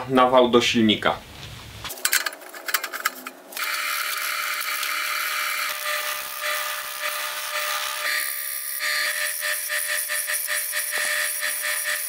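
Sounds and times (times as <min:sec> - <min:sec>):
lathe motor tone: 0:03.6 - 0:12.0.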